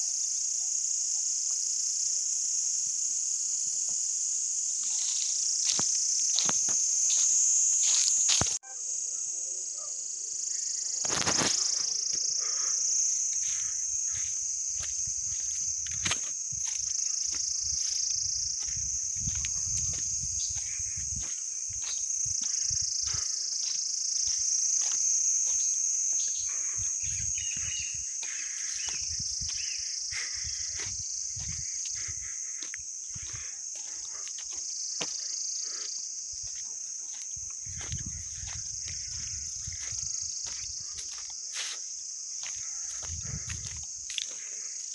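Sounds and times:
high-pitched insect chorus: 0.0 - 44.9.

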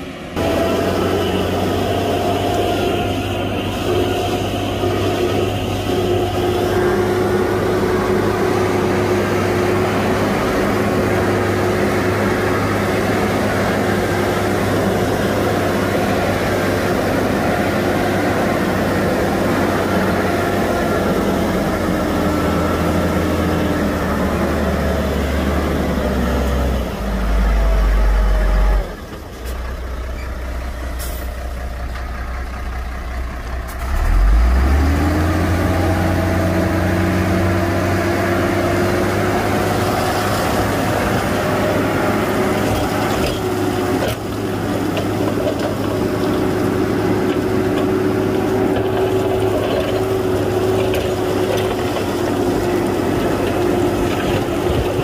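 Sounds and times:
heavy diesel engines under load: 0.0 - 55.0.

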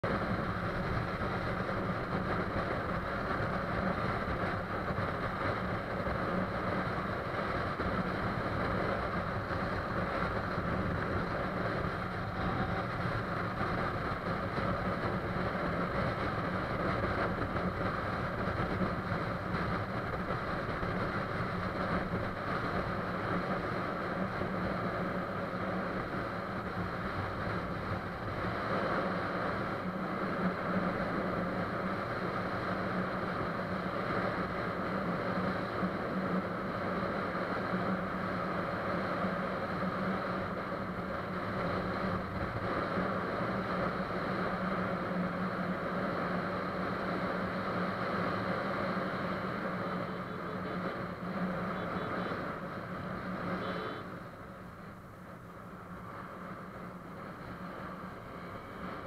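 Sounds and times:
motorbike engine running: 0.0 - 36.2
road noise: 0.0 - 59.0.

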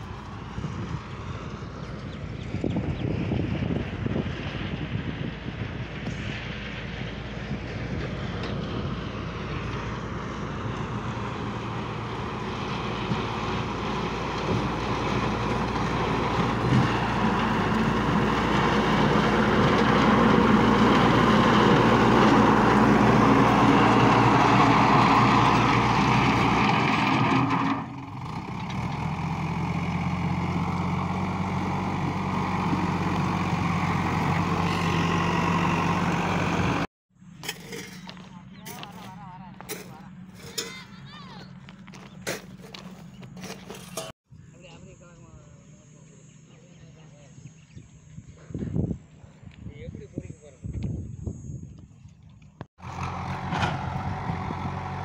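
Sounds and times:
diesel engine under load: 0.0 - 44.2, 52.7 - 55.0
loader bucket pushing gravel: 10.8 - 44.1.

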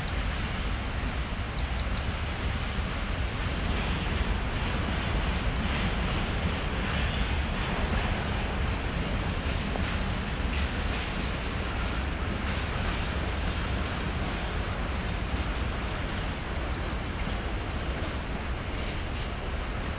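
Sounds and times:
train wheels rumbling on track: 0.0 - 19.9.

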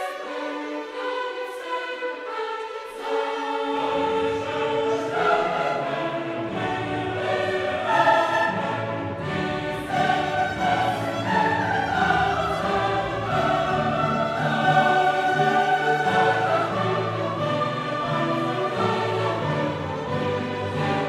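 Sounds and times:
choir singing with orchestra: 0.0 - 21.0.

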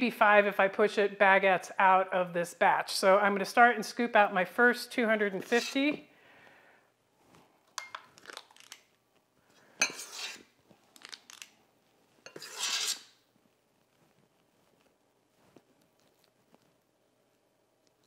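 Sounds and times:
metal scoop scraping bowl: 5.4 - 5.9, 9.8 - 10.5, 12.2 - 13.2.

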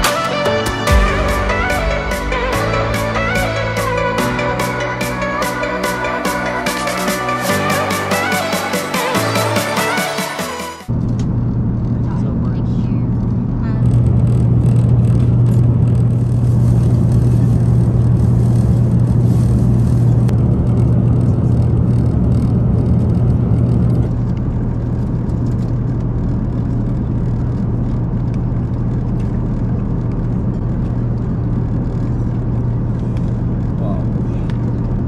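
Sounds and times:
airplane cabin hum and air rush: 10.8 - 35.0.

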